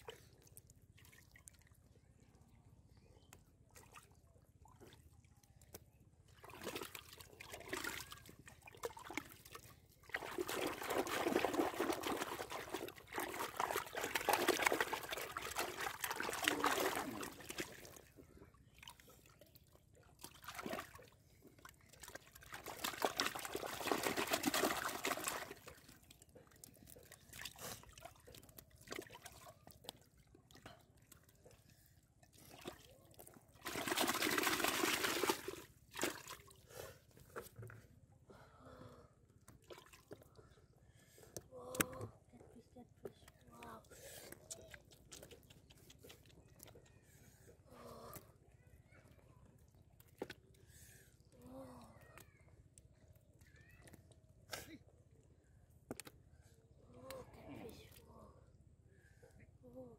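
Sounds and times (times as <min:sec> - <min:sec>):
hands squelching in wet mud: 0:03.3 - 0:37.8, 0:39.5 - 0:40.5, 0:43.2 - 0:48.6.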